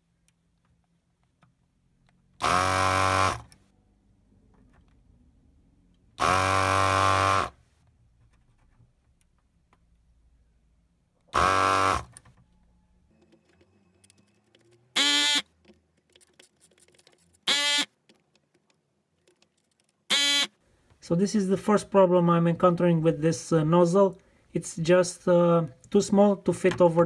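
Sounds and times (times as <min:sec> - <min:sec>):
vacuum pump buzzing: 0:02.4 - 0:03.6, 0:06.2 - 0:07.6, 0:11.3 - 0:12.2.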